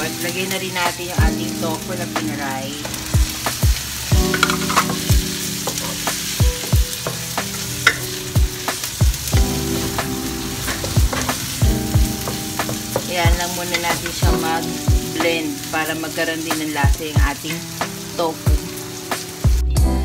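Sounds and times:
food sizzling in wok: 0:00.0 - 0:19.8
wooden spatula knocking pan: 0:04.2 - 0:07.2, 0:07.8 - 0:08.2, 0:10.8 - 0:15.0.

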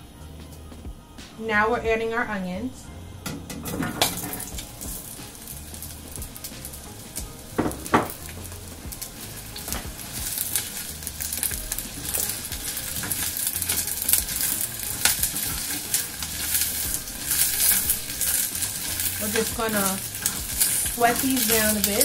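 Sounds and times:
onions sizzling in oil: 0:03.2 - 0:22.0
spatula scraping pan: 0:09.0 - 0:22.0.

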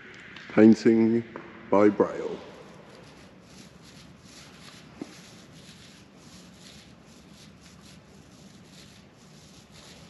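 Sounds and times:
paint roller swishing: 0:02.2 - 0:10.0.

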